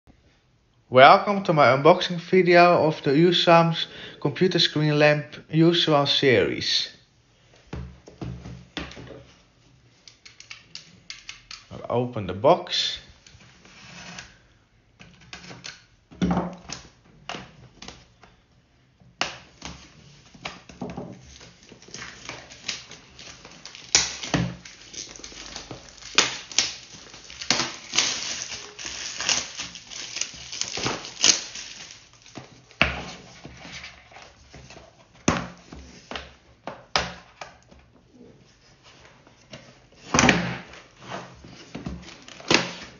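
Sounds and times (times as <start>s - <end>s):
plastic wrap crinkling: 21.2s - 35.1s.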